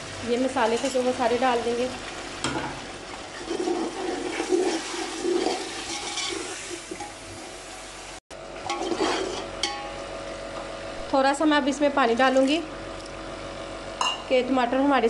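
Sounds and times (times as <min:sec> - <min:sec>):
masala sizzling in oil: 0:00.0 - 0:10.3
spatula scraping metal pot: 0:03.4 - 0:06.7, 0:08.7 - 0:09.5.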